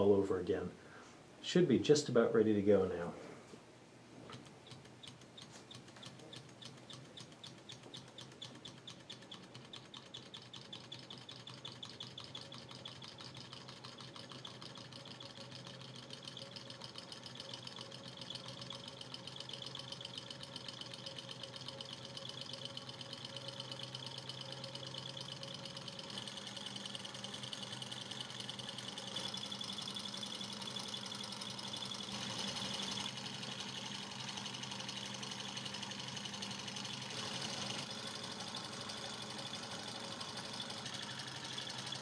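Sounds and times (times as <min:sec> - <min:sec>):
engine pistons clicking rhythmically: 0:04.3 - 0:42.0.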